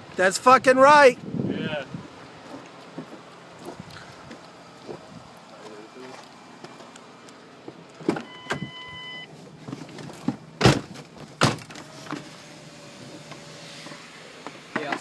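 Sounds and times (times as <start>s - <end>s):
car door thumping shut: 8.0s - 8.8s, 9.7s - 12.3s
car warning chime beeping: 8.2s - 9.3s.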